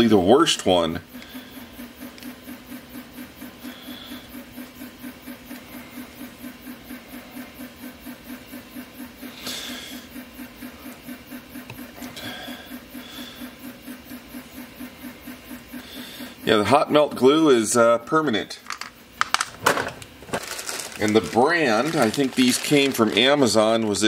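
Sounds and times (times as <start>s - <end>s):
plastic strip handling noises: 18.6s - 24.0s
scraping rustle: 19.8s - 24.0s.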